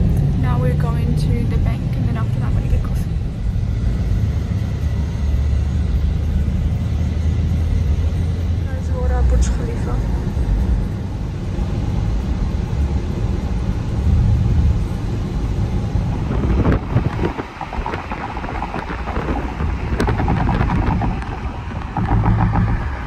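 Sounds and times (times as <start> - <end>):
tyres and engine rumble: 0.0 - 23.0.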